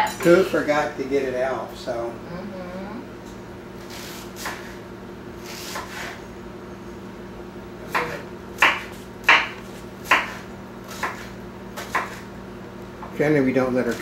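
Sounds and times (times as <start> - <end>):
knife chopping on wooden board: 4.0 - 4.8, 5.5 - 6.2, 7.9 - 12.3.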